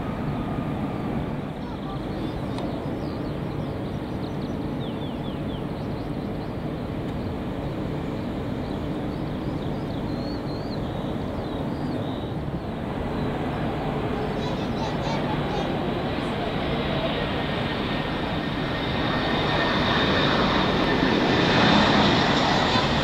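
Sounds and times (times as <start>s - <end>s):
jet engines rumbling: 0.0s - 23.0s
bird chirps: 2.0s - 6.6s, 8.6s - 12.4s.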